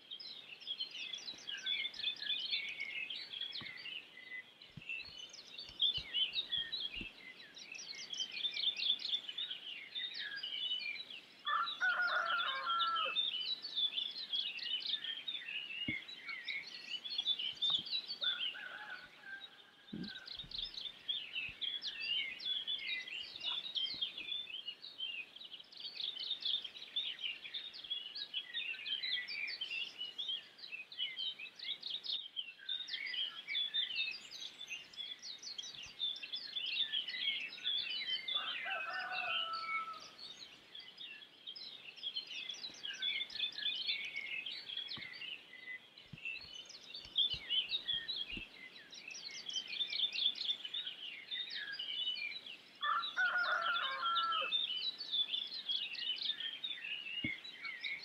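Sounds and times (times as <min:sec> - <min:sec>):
small birds chirping and twittering: 0:00.0 - 0:58.0.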